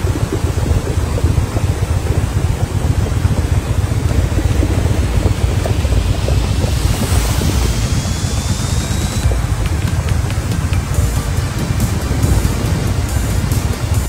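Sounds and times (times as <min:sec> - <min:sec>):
floodwater rushing: 0:00.0 - 0:14.0
wind buffeting microphone: 0:00.0 - 0:14.0
faint rising whine: 0:03.3 - 0:14.0.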